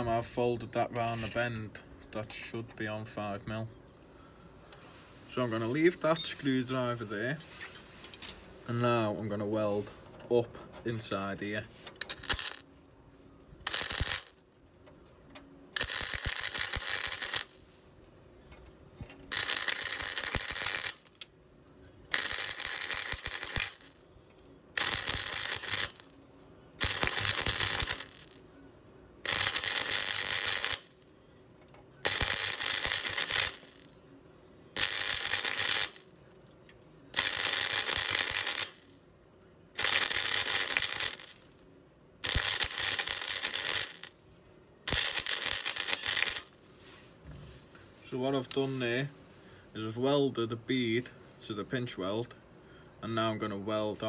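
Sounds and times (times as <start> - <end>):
welder arc hissing: 12.0 - 12.6, 13.6 - 14.4, 15.8 - 17.6, 19.3 - 21.2, 22.1 - 24.0, 24.8 - 26.1, 26.8 - 28.4, 29.3 - 31.0, 32.0 - 33.9, 34.8 - 36.0, 37.2 - 38.9, 39.8 - 41.4, 42.2 - 44.1, 44.9 - 46.5.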